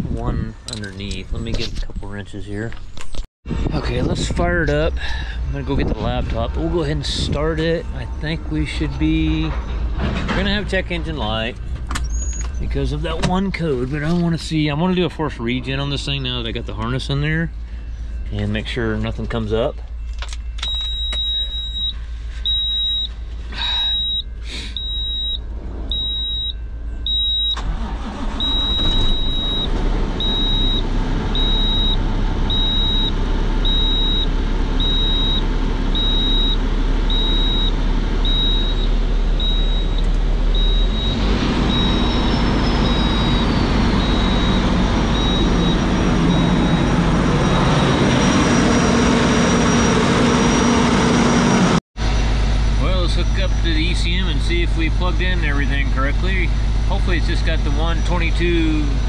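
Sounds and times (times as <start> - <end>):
diesel engine starting and idling: 3.5 - 59.0
warning buzzer beeping: 40.6 - 51.6.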